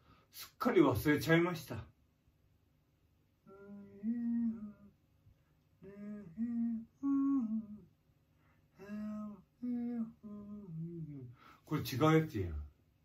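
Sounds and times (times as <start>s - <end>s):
man humming a tune: 3.4s - 5.0s, 5.8s - 8.0s, 8.8s - 11.5s.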